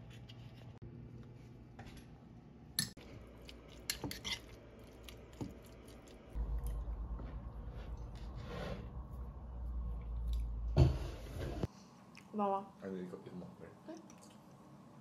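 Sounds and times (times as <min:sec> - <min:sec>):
chewing: 0:03.0 - 0:06.9
steady low rumble: 0:06.3 - 0:10.8.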